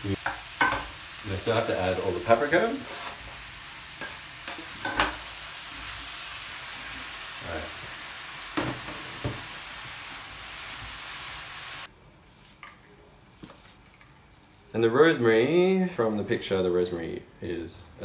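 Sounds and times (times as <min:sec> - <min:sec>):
vegetables sizzling in a pan: 0:00.0 - 0:11.9.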